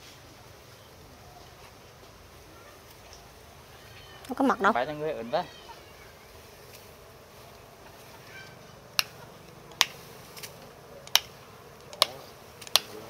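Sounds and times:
scissors snipping: 9.0 - 13.0.

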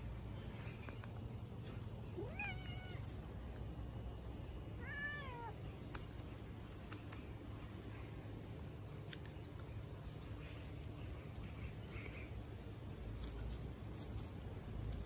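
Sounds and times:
cat meowing: 2.2 - 3.1, 4.8 - 5.6.

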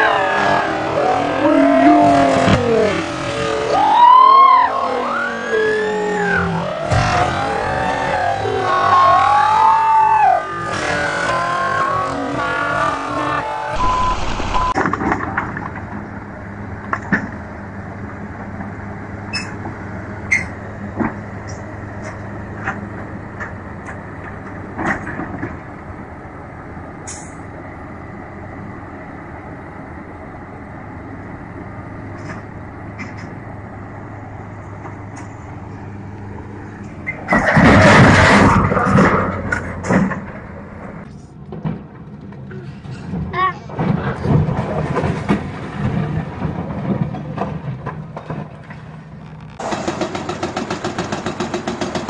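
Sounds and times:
heavy diesel machinery droning: 0.0 - 52.0
sharp knocks and metal clanks: 49.6 - 52.0.

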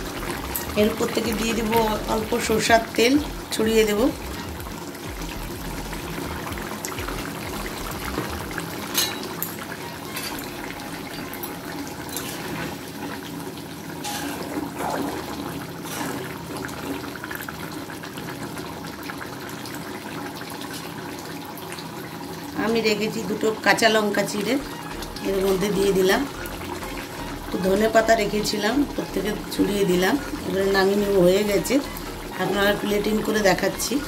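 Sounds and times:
curry simmering and bubbling: 0.0 - 22.6, 24.6 - 28.1, 28.7 - 33.9.

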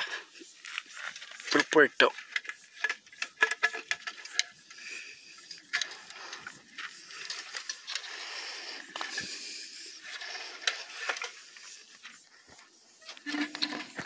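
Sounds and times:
clicks and rustling: 0.6 - 9.4.

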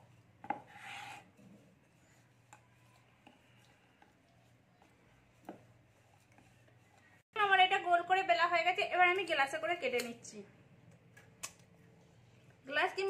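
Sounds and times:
rolling pin rolling over dough: 0.0 - 7.2.

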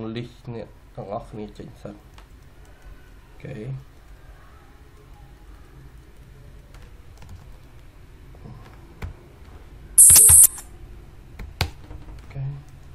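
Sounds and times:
sharp burst of hiss: 10.0 - 10.6.

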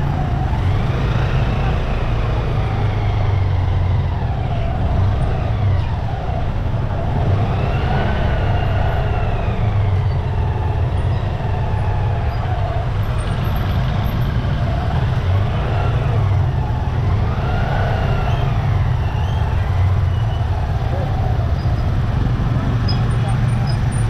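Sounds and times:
scooters and motorcycles rumbling: 0.0 - 24.0
people's voices: 14.1 - 24.0.

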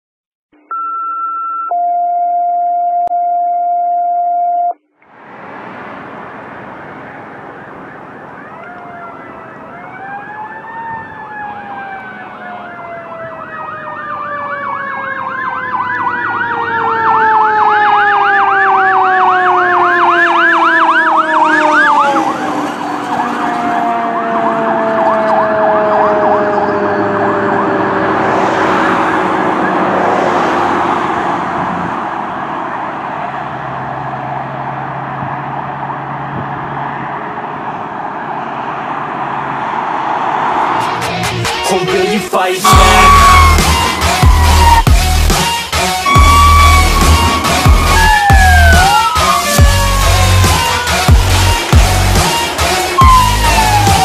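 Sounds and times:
brief steady tone: 0.5 - 4.8, 42.7 - 43.8
fire engine siren wail: 1.7 - 41.9, 42.6 - 54.0
engine and road noise: 4.7 - 54.0
fast siren yelp: 7.5 - 31.1, 42.6 - 54.0.

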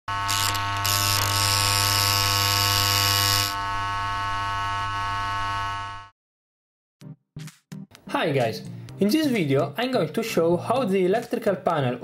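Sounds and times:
harsh electrical hum: 0.1 - 6.1.

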